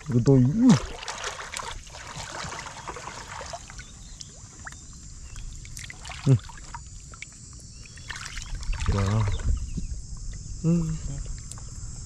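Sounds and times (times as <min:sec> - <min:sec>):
shallow water splashing: 0:00.0 - 0:09.6.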